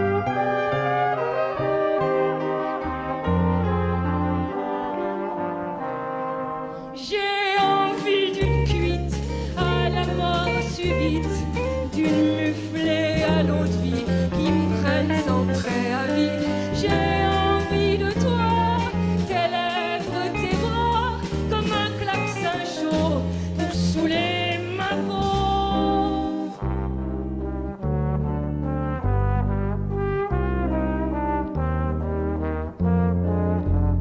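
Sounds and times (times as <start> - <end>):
live band with bass and brass: 0.0 - 34.0
woman singing into microphone: 7.0 - 26.6.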